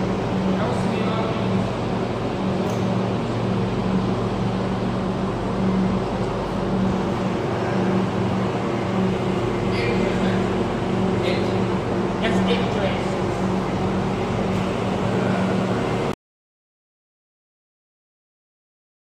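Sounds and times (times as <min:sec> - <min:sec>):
factory machinery hum: 0:00.0 - 0:16.2.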